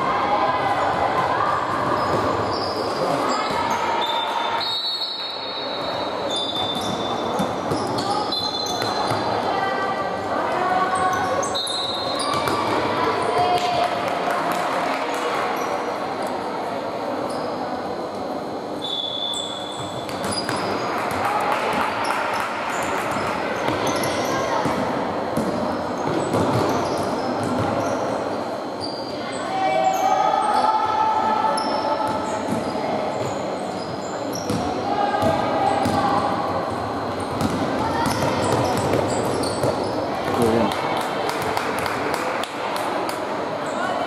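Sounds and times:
echoing hall background noise: 0:00.0 - 0:44.0
sneaker squeaks on hardwood: 0:01.8 - 0:09.2, 0:18.8 - 0:20.8, 0:26.0 - 0:28.0, 0:37.2 - 0:40.0.

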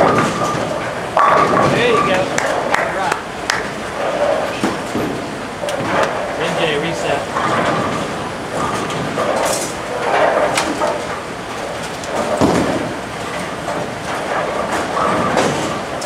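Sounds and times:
bowling balls rolling: 0:00.0 - 0:16.0
bowling pins clattering: 0:00.0 - 0:16.0
people chatting: 0:01.5 - 0:03.2, 0:06.4 - 0:07.3.

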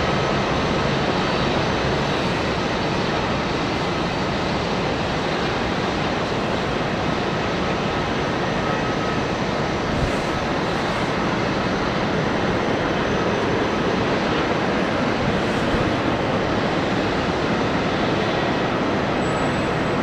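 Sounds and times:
jet engines taxiing: 0:00.0 - 0:20.0.

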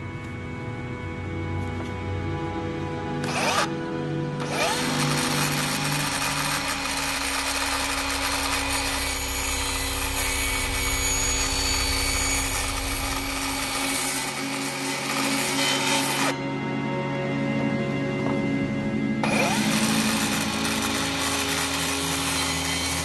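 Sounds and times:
miter saw motor hum: 0:00.0 - 0:16.4, 0:19.2 - 0:23.0
saw blade hissing: 0:04.5 - 0:16.4.

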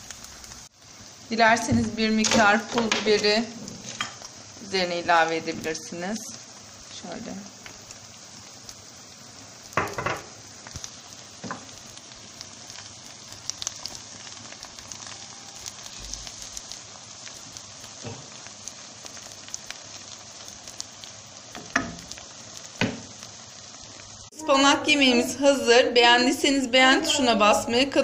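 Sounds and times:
food sizzling in oil: 0:00.0 - 0:28.0
wooden spoon knocking pan: 0:09.8 - 0:10.3, 0:21.6 - 0:22.0.

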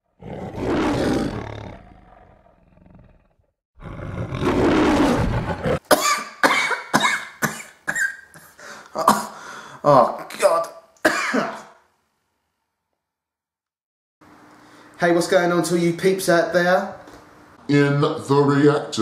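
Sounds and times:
man coughing: 0:05.9 - 0:09.4, 0:11.0 - 0:11.8.

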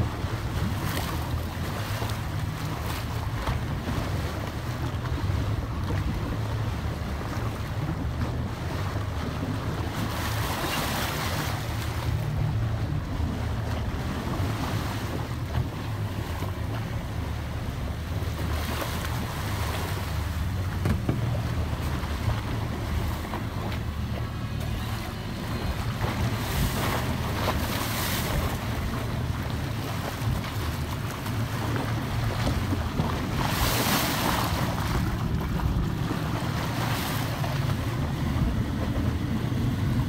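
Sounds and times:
boat motor running: 0:00.0 - 0:40.0
water rushing along hull: 0:00.0 - 0:40.0
wind buffeting microphone: 0:17.8 - 0:40.0.

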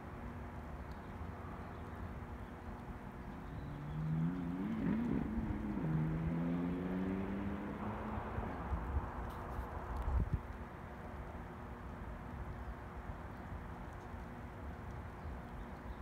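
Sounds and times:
background noise: 0:00.0 - 0:16.0
vehicle engine passing: 0:03.5 - 0:09.4.

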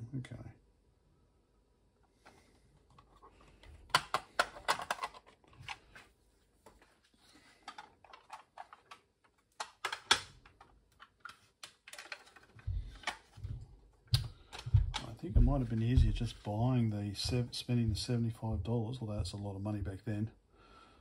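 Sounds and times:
sharp clicks and taps: 0:12.6 - 0:16.4.

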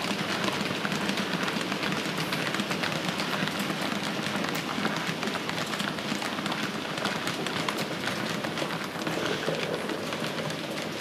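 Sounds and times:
model train wheels rattling on rails: 0:00.0 - 0:11.0.

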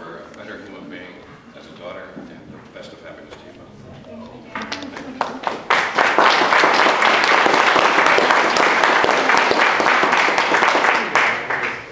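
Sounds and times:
audience applauding: 0:04.8 - 0:11.9.

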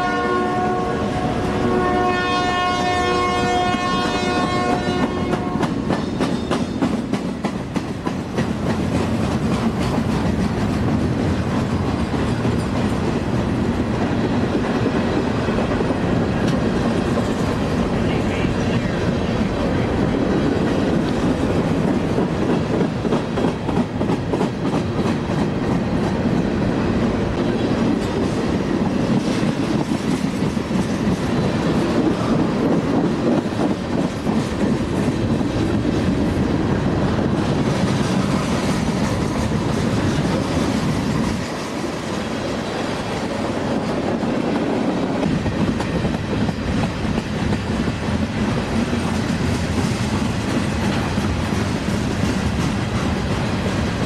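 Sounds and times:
train wheels rumbling on rail: 0:00.0 - 0:54.0
wheels clicking over rail joints: 0:05.0 - 0:18.0.

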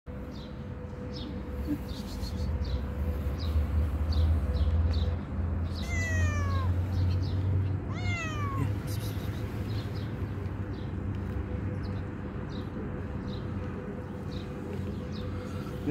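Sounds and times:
kitten meowing: 0:05.8 - 0:06.8, 0:07.9 - 0:08.8.

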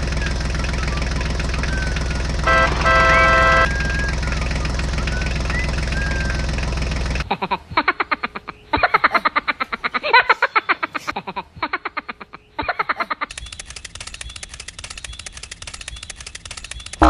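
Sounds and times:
fast run of clicks: 0:00.1 - 0:07.2, 0:13.2 - 0:17.0.

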